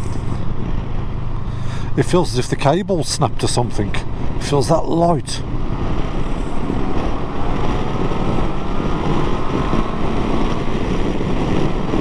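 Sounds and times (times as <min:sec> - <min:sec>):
wind rushing on microphone: 0:03.4 - 0:12.0.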